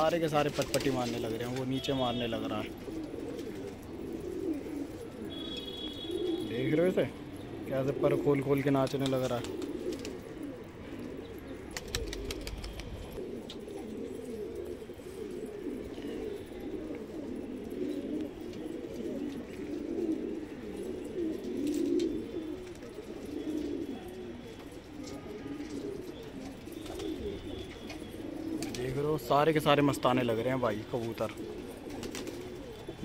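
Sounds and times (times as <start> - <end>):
pigeons cooing: 0.0 - 33.0.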